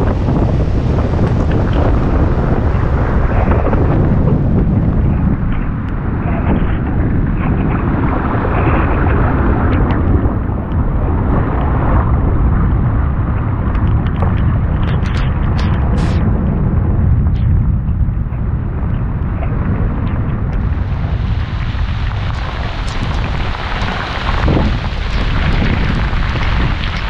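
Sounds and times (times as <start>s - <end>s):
driving rain hissing: 0.0s - 16.2s, 17.1s - 27.0s
storm wind buffeting microphone: 0.0s - 27.0s.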